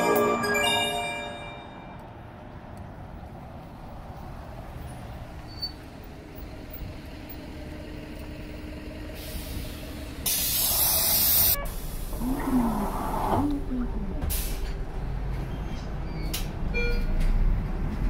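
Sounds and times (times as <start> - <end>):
bus diesel engine running: 0.0 - 18.0
compressed air hissing: 9.2 - 13.4.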